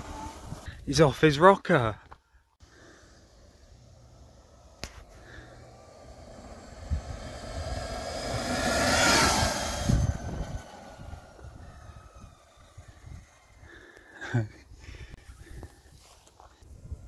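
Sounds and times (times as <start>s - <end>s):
electric dirt bike passing: 0.0s - 0.7s, 2.6s - 14.5s.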